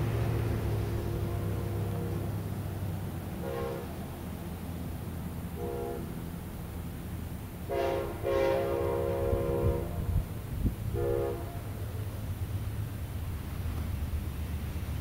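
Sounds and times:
train rumble: 0:00.0 - 0:15.0
locomotive horn blasts: 0:01.0 - 0:02.4, 0:03.4 - 0:04.1, 0:05.5 - 0:06.2, 0:07.6 - 0:10.3, 0:10.9 - 0:11.8.

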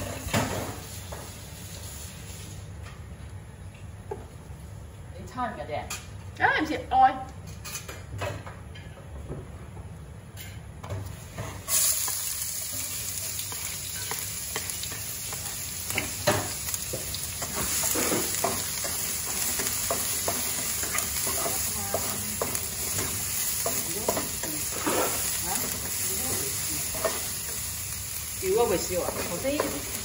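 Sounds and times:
onion sizzling in hot oil: 0:00.0 - 0:02.7, 0:11.1 - 0:30.0
spatula scraping and tapping pan: 0:13.4 - 0:27.6, 0:28.9 - 0:30.0.

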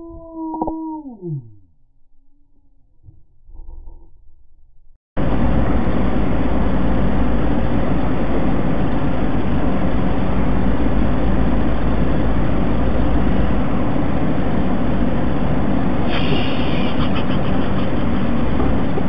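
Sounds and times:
vehicle engine drone: 0:00.0 - 0:19.0
road noise inside vehicle: 0:05.2 - 0:19.0.

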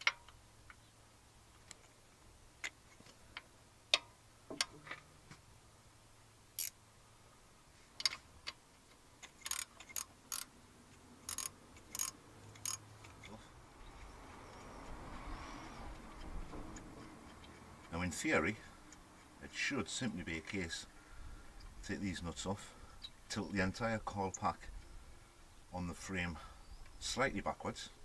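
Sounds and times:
spanner clicking against nut: 0:09.2 - 0:10.5, 0:11.2 - 0:12.8.

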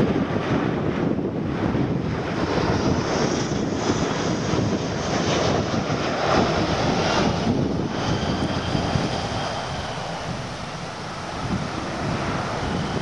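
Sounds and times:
jet airplane rumble: 0:00.0 - 0:13.0
faint high engine whine: 0:03.2 - 0:13.0.

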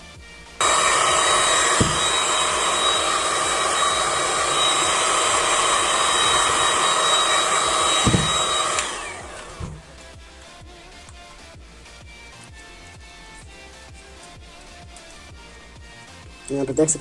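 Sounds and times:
heat gun whining: 0:00.6 - 0:10.0.

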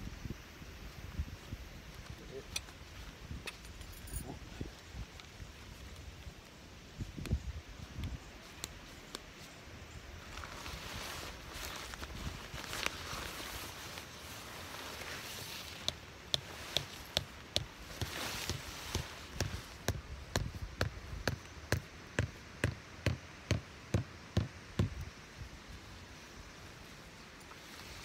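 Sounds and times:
tent fabric rustling: 0:10.2 - 0:19.9, 0:27.0 - 0:28.0
tent stakes hammered: 0:15.7 - 0:25.2.

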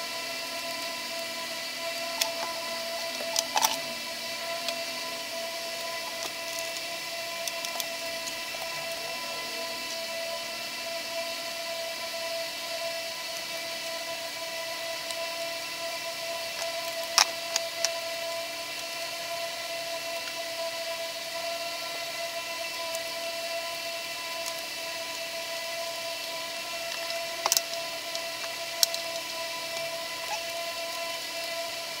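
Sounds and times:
steady hum with held tones: 0:00.0 - 0:32.0
hardware clicking and clinking: 0:02.1 - 0:03.9.

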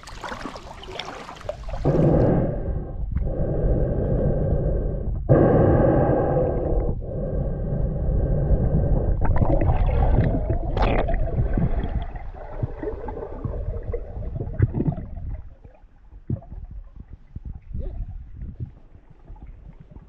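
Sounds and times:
underwater rumbling water noise: 0:00.0 - 0:20.0
gurgling bubble bursts: 0:09.1 - 0:16.8.

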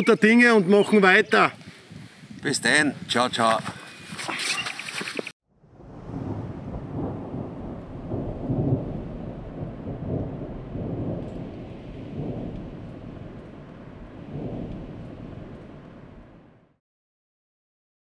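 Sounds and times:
thunder rolling: 0:05.5 - 0:16.8
rain: 0:05.6 - 0:16.8.

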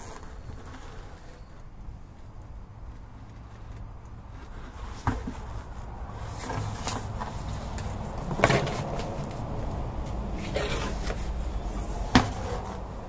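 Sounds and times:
rubber knocks and scuffs: 0:04.3 - 0:11.3
tyre thumping on pavement: 0:04.9 - 0:05.5, 0:06.2 - 0:09.4, 0:12.0 - 0:12.8.

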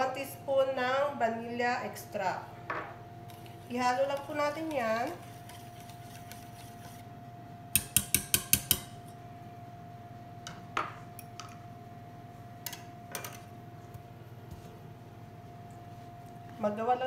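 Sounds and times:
faint hum: 0:00.0 - 0:17.0
whisk tapping metal bowl: 0:03.3 - 0:07.0, 0:07.7 - 0:09.0.

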